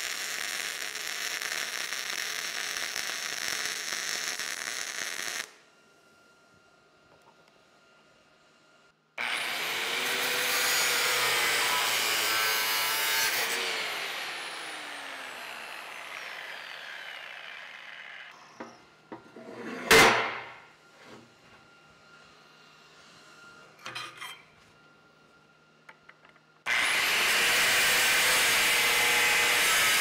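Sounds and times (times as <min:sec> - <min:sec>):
angle grinder grinding steel: 0:09.2 - 0:18.6, 0:26.7 - 0:30.0.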